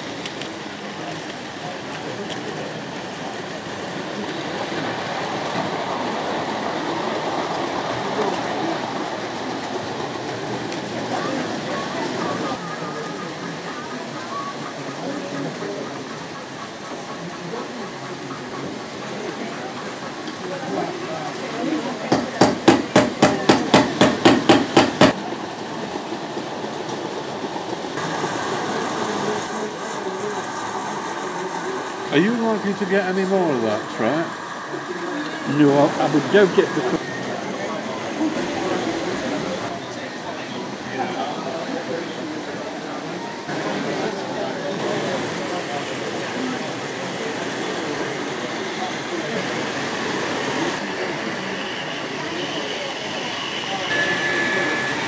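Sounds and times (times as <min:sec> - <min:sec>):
model train running on metal track: 0:00.0 - 0:55.0
rapid sharp knocks: 0:22.1 - 0:25.2.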